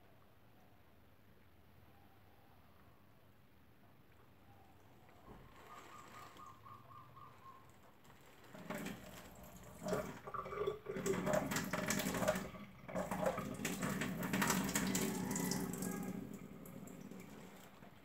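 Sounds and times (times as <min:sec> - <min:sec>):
water splashing: 0:08.2 - 0:18.0.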